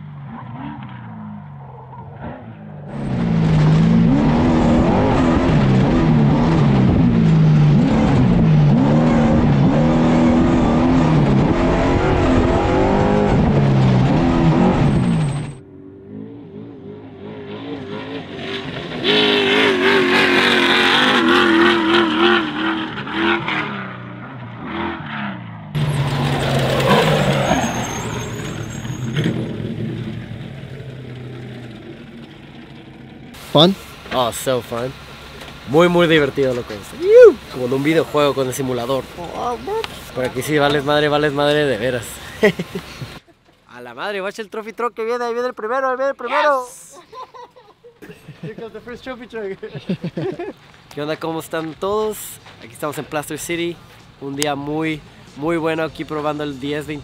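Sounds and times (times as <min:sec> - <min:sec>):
truck engine revving: 0:00.0 - 0:43.3.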